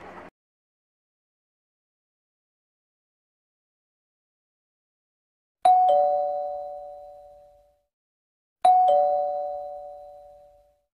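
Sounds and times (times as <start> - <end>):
two-note doorbell chime: 5.7 - 7.8, 8.6 - 10.8.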